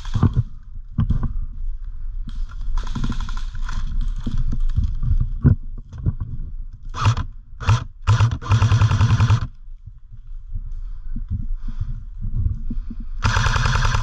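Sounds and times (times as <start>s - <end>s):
airsoft rifle bursts: 7.0s - 9.5s, 13.2s - 14.0s.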